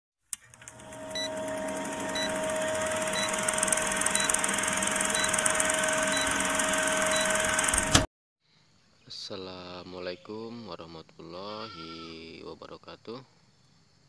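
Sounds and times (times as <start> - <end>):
film projector clatter: 0.4 - 8.1
projector hum: 0.4 - 8.1
short beeps: 7.1 - 7.5.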